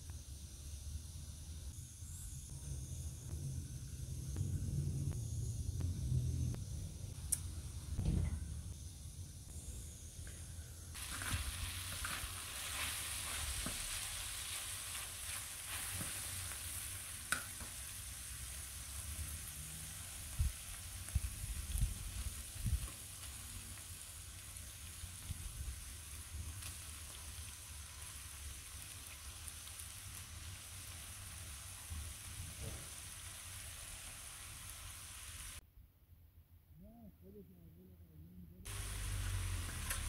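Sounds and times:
dull low bumps: 3.3 - 8.8
liver sizzling in oil: 10.9 - 35.6, 38.7 - 40.0.

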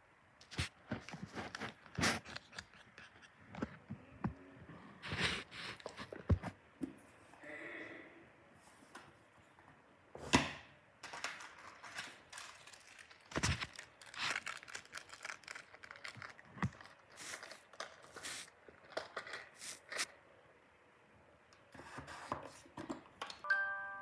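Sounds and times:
packaging crinkling and rustling: 0.5 - 2.9, 11.0 - 20.1.

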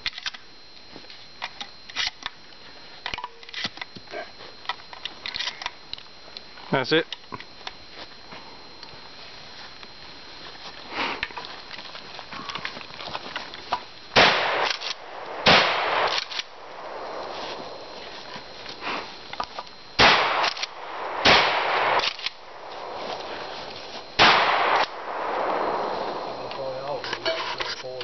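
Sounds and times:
shotgun shots: 14.2 - 18.5, 20.0 - 27.6.

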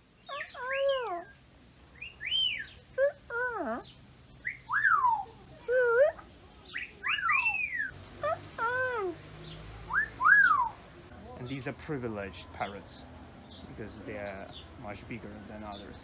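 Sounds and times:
parrots whistling: 4.4 - 5.3, 6.7 - 9.1, 9.9 - 10.8.

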